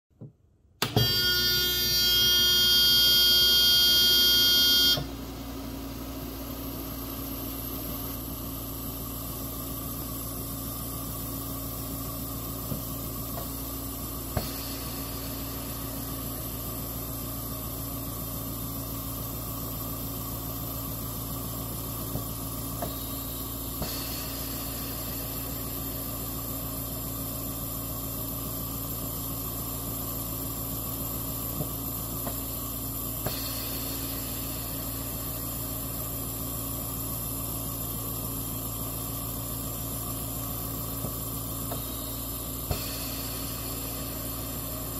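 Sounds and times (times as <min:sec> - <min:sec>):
compressor humming: 0:00.2 - 0:44.9
loud buzzer tone: 0:00.9 - 0:05.2.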